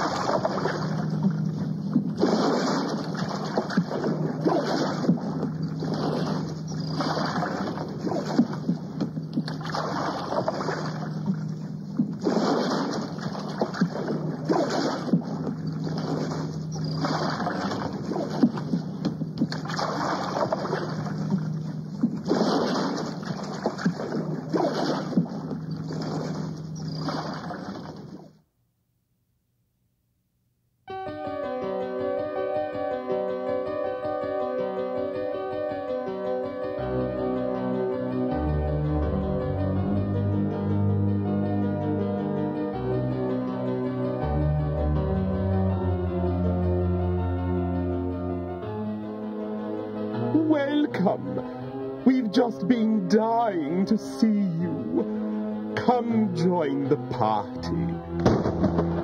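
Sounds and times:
splashing sloshing water: 0:00.0 - 0:28.4
steady low hum: 0:00.0 - 0:30.8.

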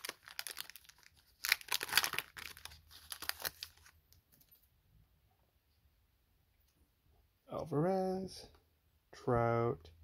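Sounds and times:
foil wrapper tearing and crinkling: 0:00.0 - 0:04.0.

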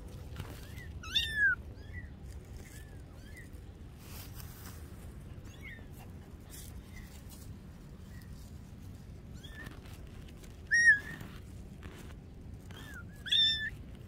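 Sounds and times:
kittens mewing: 0:00.6 - 0:01.9, 0:10.7 - 0:11.3, 0:12.7 - 0:13.8.

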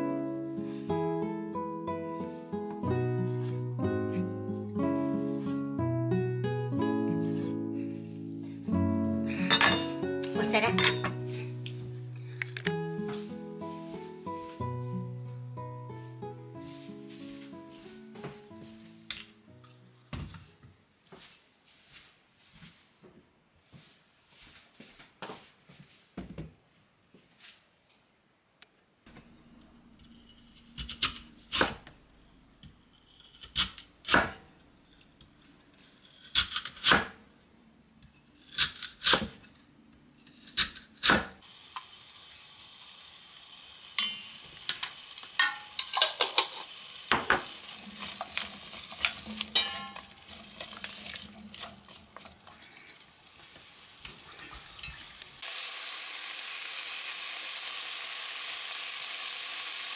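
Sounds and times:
vegetables sizzling in a pot: 0:40.7 - 0:59.9.

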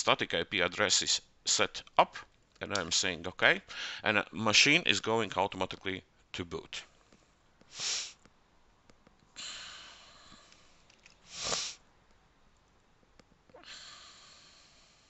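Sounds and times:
person breathing into microphone: 0:03.7 - 0:04.0, 0:09.4 - 0:11.8
loud sniff: 0:07.7 - 0:08.2, 0:11.2 - 0:11.8.

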